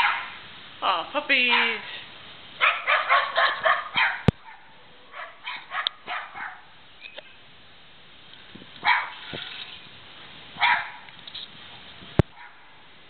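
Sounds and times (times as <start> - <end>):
puppies yipping and barking: 2.6 - 6.6.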